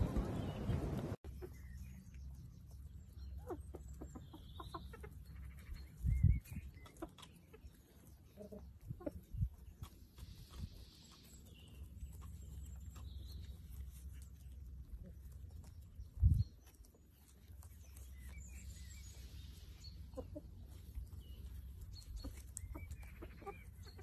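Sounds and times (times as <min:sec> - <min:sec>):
steady low rumble: 0:00.0 - 0:01.2
chickens clucking: 0:00.0 - 0:24.0.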